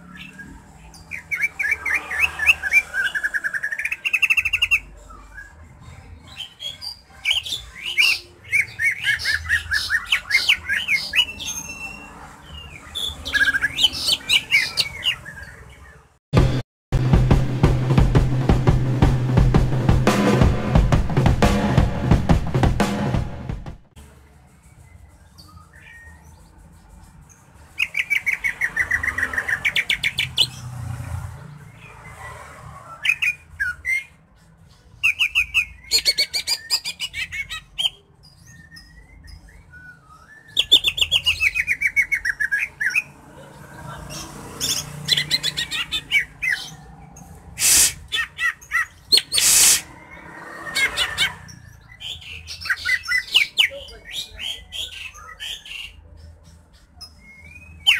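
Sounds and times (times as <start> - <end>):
bird singing trills and whistles: 0.0 - 16.0, 24.8 - 26.5, 35.0 - 43.2, 47.6 - 57.9
harsh bird notes: 47.5 - 53.5.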